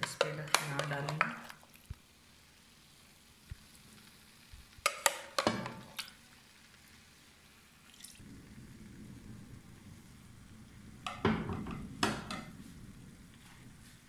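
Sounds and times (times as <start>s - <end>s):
low steady hum: 8.2s - 14.0s.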